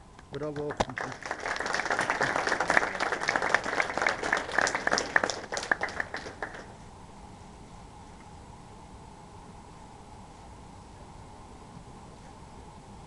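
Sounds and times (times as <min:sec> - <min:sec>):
audience applauding: 0:00.5 - 0:06.8.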